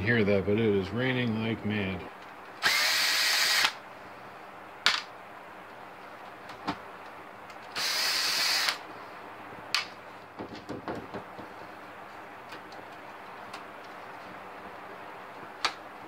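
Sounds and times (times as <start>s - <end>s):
electric screwdriver whirring: 2.6s - 3.8s, 7.8s - 8.8s.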